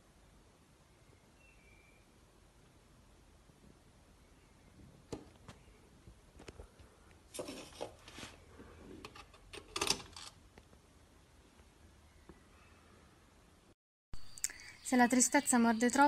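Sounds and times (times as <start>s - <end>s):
handling noise and rubbing: 6.4s - 10.4s.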